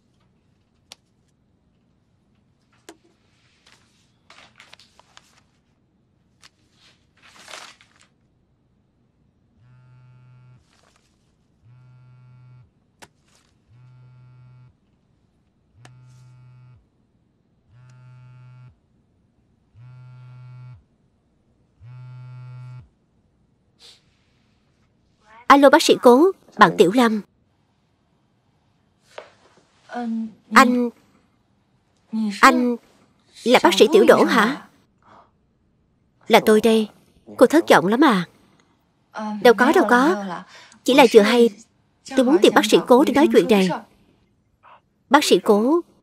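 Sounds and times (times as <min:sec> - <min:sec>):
faint clicks and rustles: 0:00.0 - 0:08.3, 0:10.6 - 0:11.5
mobile phone buzzing on vibrate: 0:09.6 - 0:10.8, 0:11.6 - 0:12.8, 0:13.6 - 0:14.8, 0:15.7 - 0:16.9, 0:17.7 - 0:18.8, 0:19.7 - 0:20.9, 0:21.8 - 0:22.9.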